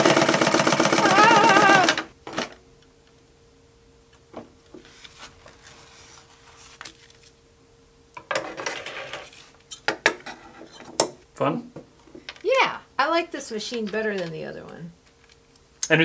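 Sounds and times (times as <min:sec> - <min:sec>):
faint steady hum: 0:00.0 - 0:16.0.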